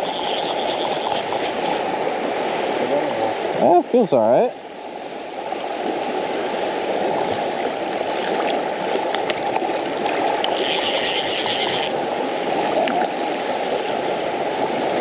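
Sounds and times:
fly reel ratchet buzzing: 0.0 - 1.9, 10.4 - 12.0
fast river current rushing: 0.0 - 15.0.

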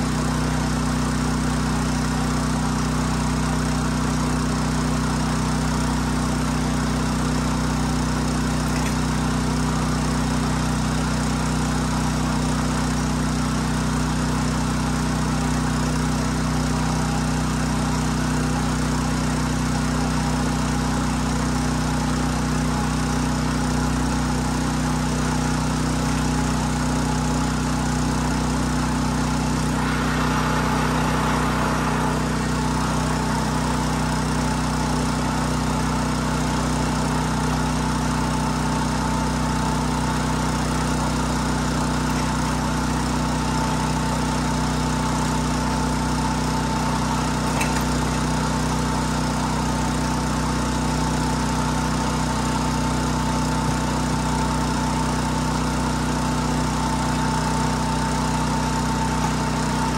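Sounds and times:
rail bike mechanical drone: 12.4 - 52.0, 52.6 - 59.9.

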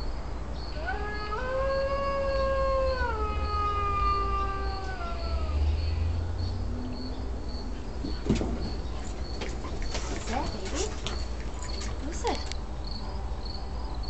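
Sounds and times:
recorded wolf howl through phone: 0.7 - 6.2.

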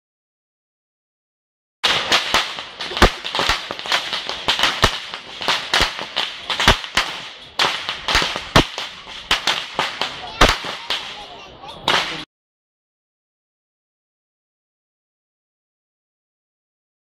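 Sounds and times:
whip cracking: 1.8 - 11.3, 11.9 - 12.3.

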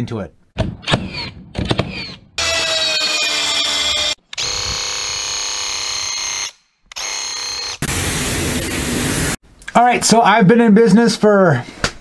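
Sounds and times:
track saw motor whine: 2.4 - 7.8.

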